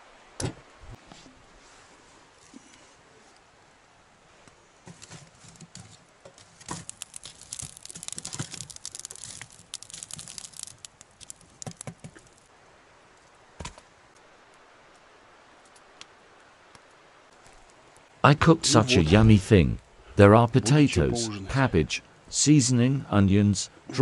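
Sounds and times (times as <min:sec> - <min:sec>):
wood fire crackling: 0:04.8 - 0:18.3.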